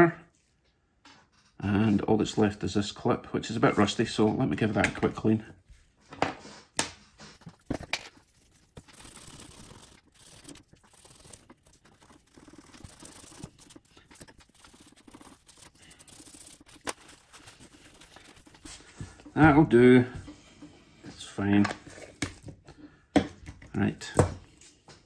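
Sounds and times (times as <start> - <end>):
brush scratching metal: 6.4 - 19.7.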